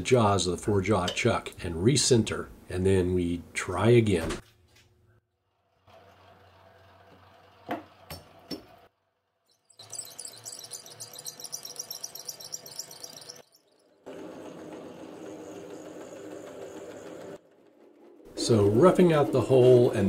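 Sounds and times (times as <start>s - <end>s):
lathe running low: 9.8s - 20.0s.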